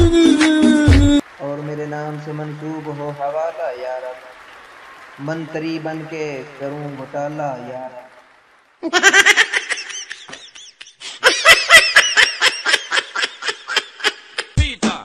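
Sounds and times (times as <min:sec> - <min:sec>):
music with heavy bass beat: 0:00.0 - 0:01.2, 0:14.4 - 0:15.0
high-pitched giggling laugh: 0:08.8 - 0:14.6.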